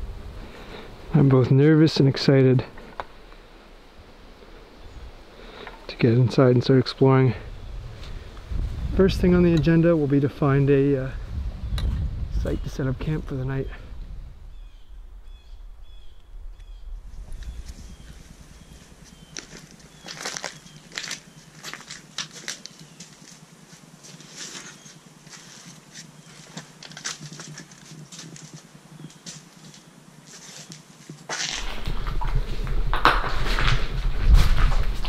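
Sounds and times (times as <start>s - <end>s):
low rumble: 7.4s - 20.9s, 31.5s - 35.0s
footsteps crunching over rubble: 17.0s - 35.0s.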